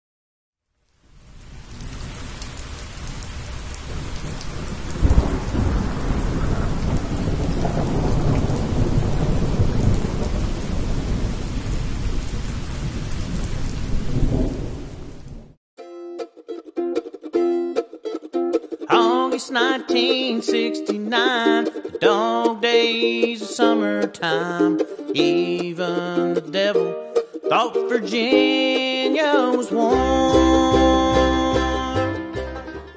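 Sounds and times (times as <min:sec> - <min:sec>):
heavy rain: 0:00.8 - 0:15.6, 0:29.4 - 0:32.2
rolling thunder: 0:01.6 - 0:15.6
loud thunderclap: 0:03.3 - 0:15.6
acoustic plucked-string music: 0:15.8 - 0:32.9.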